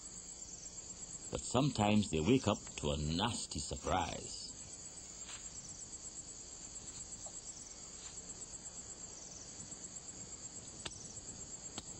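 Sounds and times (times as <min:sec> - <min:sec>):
crickets chirring: 0:00.0 - 0:11.9
faint ticks: 0:10.6 - 0:11.9.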